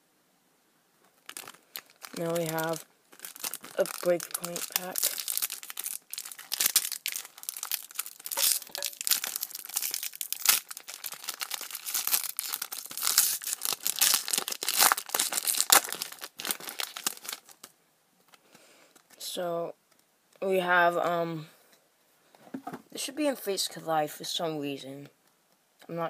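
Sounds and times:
foil wrapper crinkling and tearing: 0:01.1 - 0:17.7.

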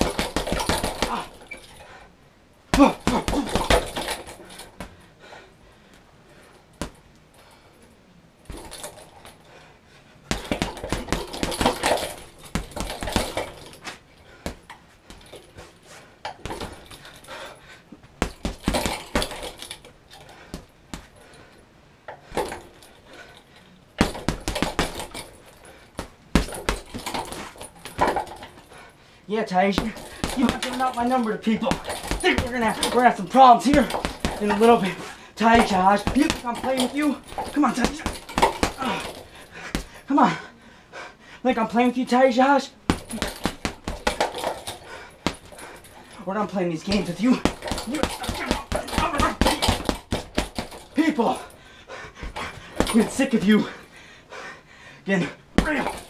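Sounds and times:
gloves punching heavy bag: 0:00.0 - 0:02.0, 0:02.7 - 0:05.0, 0:06.8 - 0:07.0, 0:08.4 - 0:09.4, 0:10.3 - 0:15.6, 0:16.3 - 0:21.5, 0:22.2 - 0:23.4, 0:24.0 - 0:28.9, 0:29.5 - 0:40.1, 0:42.8 - 0:53.9, 0:55.6 - 0:56.0.

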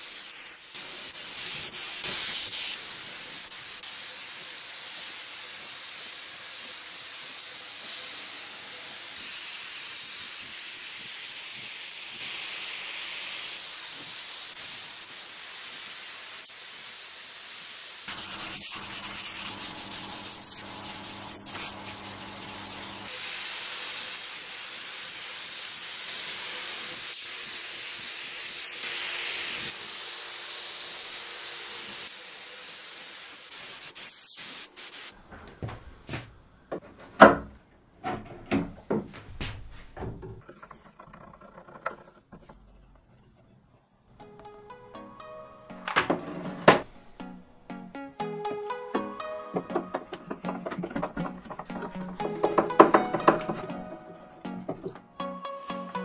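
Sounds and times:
spray gun hissing: 0:00.0 - 0:35.2.

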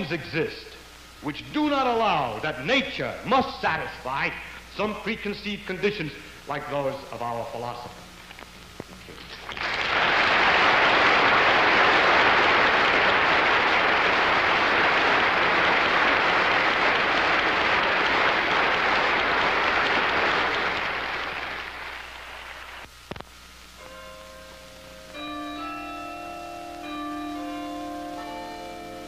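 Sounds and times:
audience applauding: 0:09.2 - 0:22.9.

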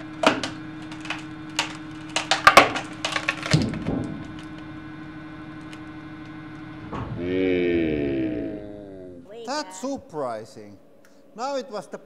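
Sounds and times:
wood cracking and splitting: 0:00.0 - 0:06.6
steady hum: 0:00.0 - 0:12.0.

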